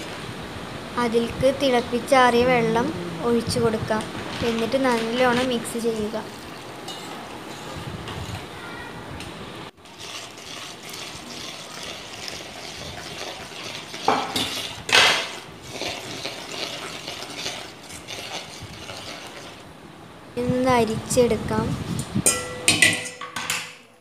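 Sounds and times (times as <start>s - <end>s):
spoon scraping steel vessel: 6.8s - 8.5s, 9.8s - 19.6s
metal clanks: 22.2s - 23.9s.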